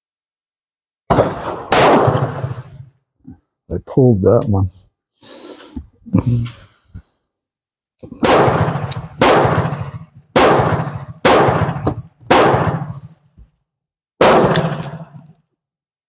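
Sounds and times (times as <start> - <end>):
pistol shots with echo: 1.1 - 2.8, 8.2 - 13.2, 14.2 - 15.3.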